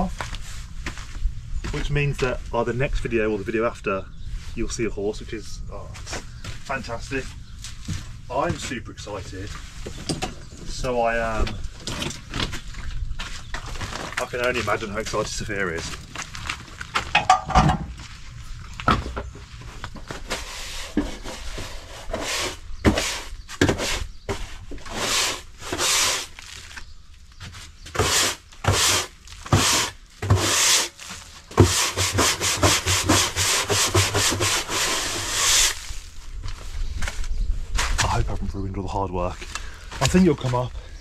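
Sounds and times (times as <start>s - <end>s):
push broom scrubbing wooden floor: 20.3s - 24.0s, 24.9s - 26.3s, 28.0s - 35.9s.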